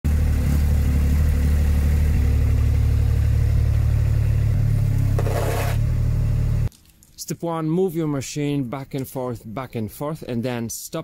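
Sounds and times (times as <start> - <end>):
mini excavator diesel engine: 0.0 - 6.7.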